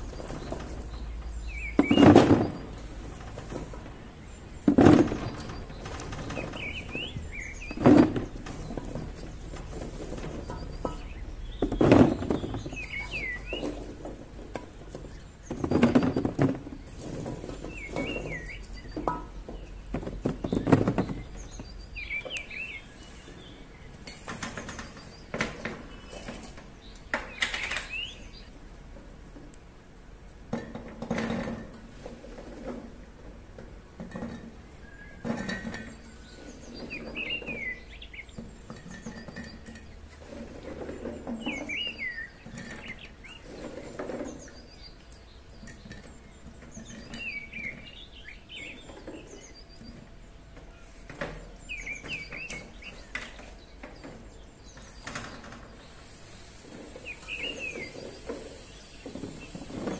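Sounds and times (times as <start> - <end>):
small bird chirping: 10.4 - 13.9, 57.0 - 59.8.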